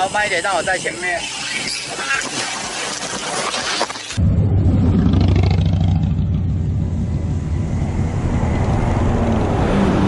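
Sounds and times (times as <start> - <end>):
bus pulling alongside: 4.2 - 10.0
traffic engine hum: 4.2 - 10.0.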